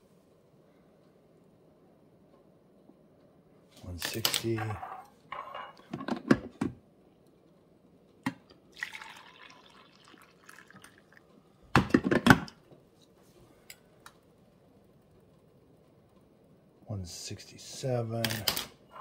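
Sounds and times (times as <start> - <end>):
coffee pouring into glass mug: 8.4 - 11.2.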